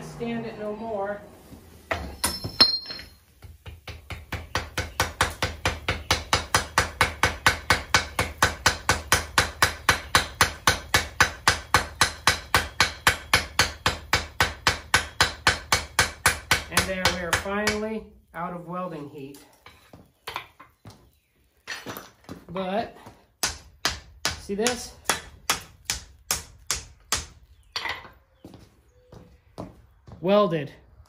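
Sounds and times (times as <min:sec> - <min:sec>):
hammer striking hot steel on anvil: 0:01.9 - 0:17.8, 0:23.4 - 0:27.4.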